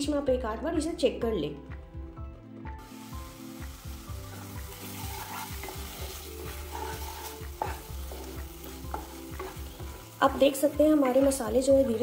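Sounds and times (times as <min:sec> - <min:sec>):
masala sizzling in a pan: 0:02.8 - 0:12.0
spatula scraping a pan: 0:04.2 - 0:11.6.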